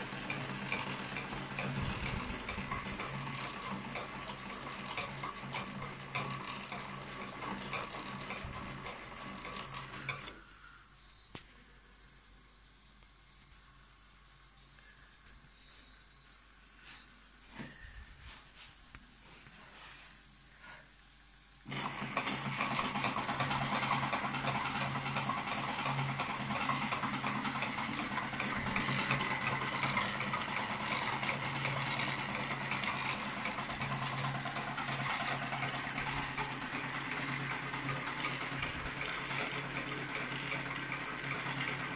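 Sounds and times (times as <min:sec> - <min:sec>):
toy steam engine hissing and whirring: 0:00.0 - 0:11.0, 0:19.5 - 0:41.9.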